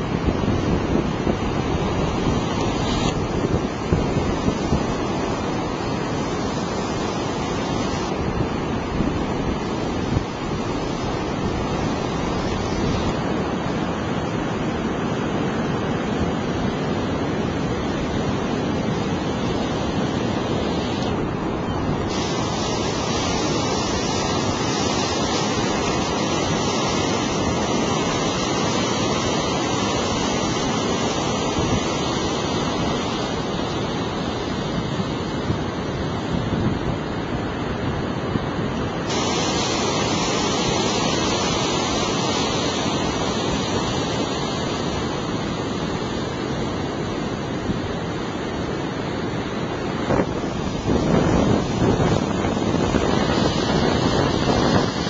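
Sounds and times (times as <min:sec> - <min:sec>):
wind on microphone: 0:00.0 - 0:55.0
surf breaking: 0:17.6 - 0:34.8, 0:38.9 - 0:46.4, 0:49.4 - 0:55.0.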